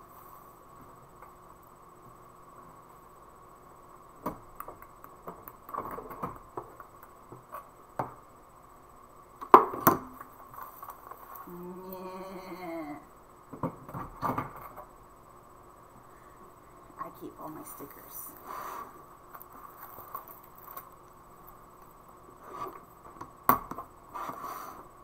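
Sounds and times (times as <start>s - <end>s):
woman humming: 11.4s - 13.1s.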